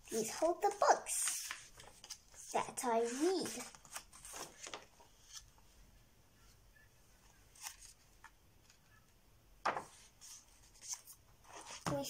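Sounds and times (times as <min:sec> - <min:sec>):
paper pages rustling: 0:00.2 - 0:05.7, 0:07.4 - 0:08.9, 0:09.7 - 0:12.0.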